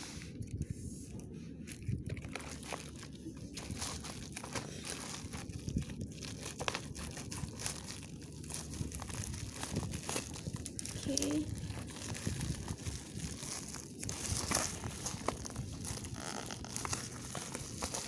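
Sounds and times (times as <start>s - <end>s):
plastic bag crinkling: 0.4s - 18.0s.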